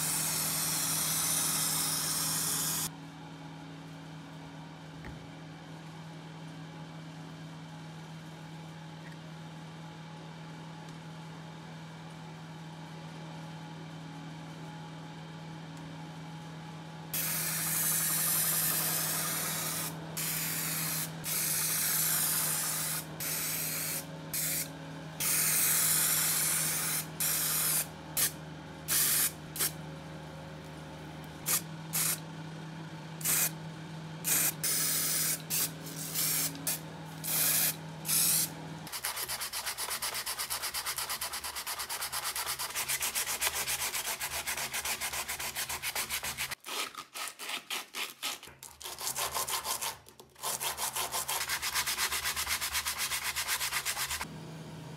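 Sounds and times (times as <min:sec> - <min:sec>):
steady low hum: 0:16.0 - 0:46.4
spray paint can hissing: 0:17.2 - 0:28.3, 0:28.9 - 0:29.7, 0:31.5 - 0:32.2, 0:34.3 - 0:38.5
sandpaper rubbing on wood: 0:38.9 - 0:54.2.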